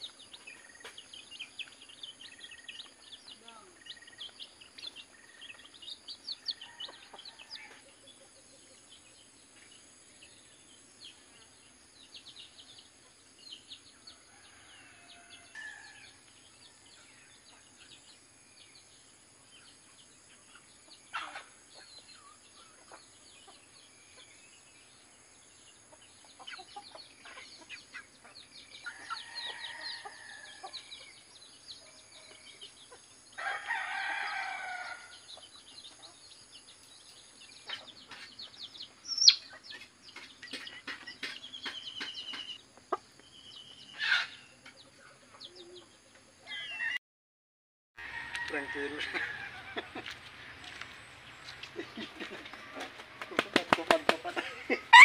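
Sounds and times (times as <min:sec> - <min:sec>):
chickens clucking: 0:20.5 - 0:24.4, 0:25.7 - 0:30.7, 0:35.4 - 0:46.9, 0:48.5 - 0:55.0.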